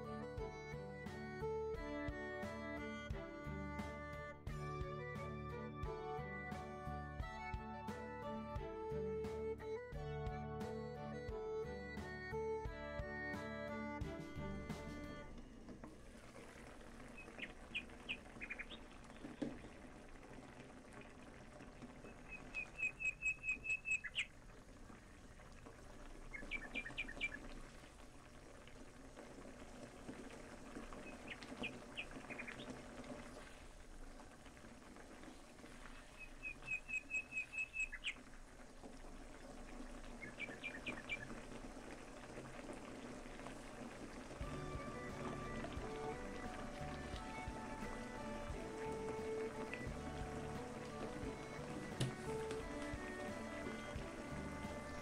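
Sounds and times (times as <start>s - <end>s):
small bird chirping: 17.2s - 18.9s, 22.2s - 24.3s, 26.3s - 27.4s, 31.0s - 32.6s, 36.2s - 38.2s, 40.2s - 41.2s.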